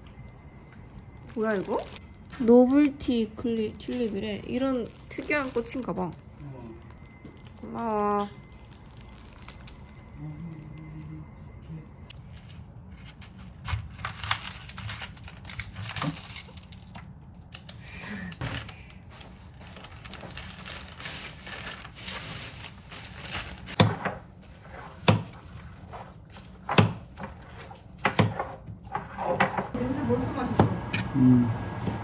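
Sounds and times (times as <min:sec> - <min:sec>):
plastic packet crinkling: 0:01.2 - 0:02.3, 0:03.1 - 0:11.1, 0:13.8 - 0:17.8, 0:18.4 - 0:28.0
knife chopping on plastic board: 0:23.8 - 0:24.2, 0:25.0 - 0:25.3.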